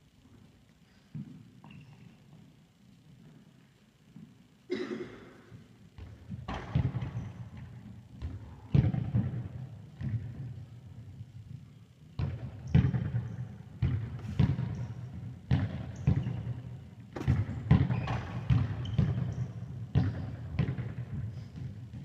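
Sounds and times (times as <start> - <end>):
ball thudding on hall floor: 12.2 - 22.0.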